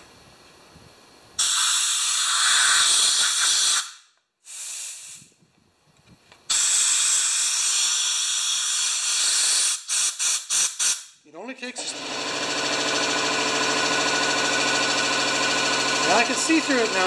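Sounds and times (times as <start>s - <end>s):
compressed air hissing: 1.4s - 5.4s, 6.5s - 11.2s.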